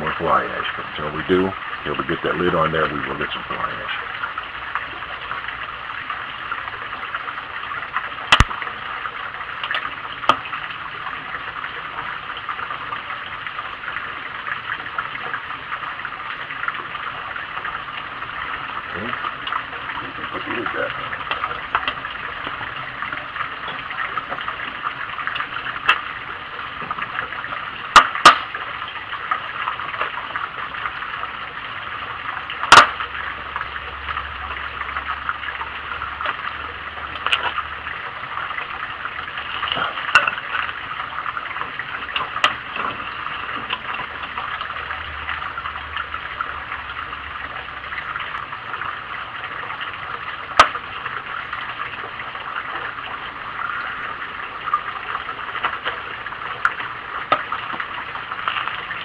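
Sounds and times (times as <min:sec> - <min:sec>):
wood fire crackling: 0:03.0 - 0:59.0.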